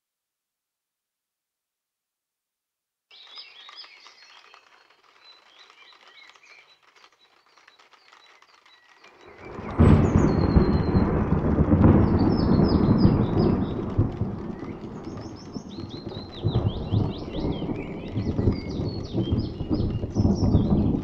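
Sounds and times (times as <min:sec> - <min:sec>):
small birds singing: 0:03.1 - 0:21.0
thunder rumbling: 0:09.2 - 0:21.0.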